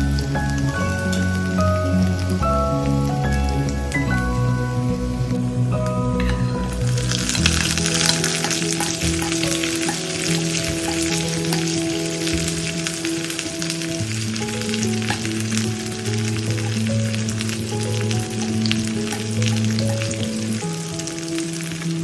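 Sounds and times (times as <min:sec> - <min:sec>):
soft background music: 0:00.0 - 0:22.0
meat sizzling in hot butter: 0:05.8 - 0:22.0
metal spoon stirring: 0:06.2 - 0:12.9.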